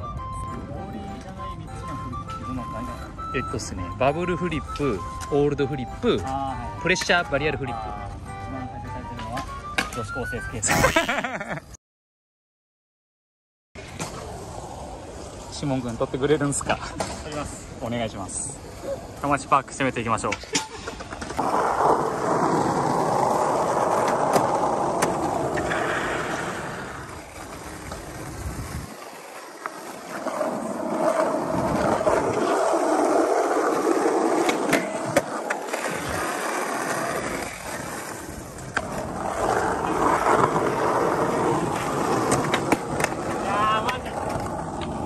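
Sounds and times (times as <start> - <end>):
skateboard wheels rolling: 13.8 - 45.0
skateboard clacks: 20.2 - 45.0.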